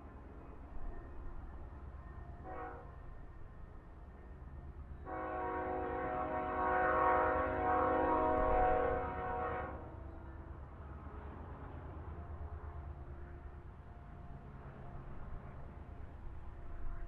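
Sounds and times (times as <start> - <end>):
locomotive air horn blast: 2.4 - 2.9, 5.1 - 9.8.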